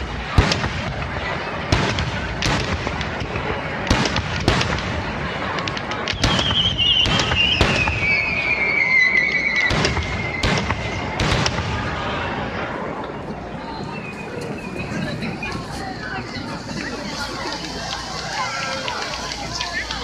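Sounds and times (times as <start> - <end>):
falling wavering whistle: 6.5 - 10.4.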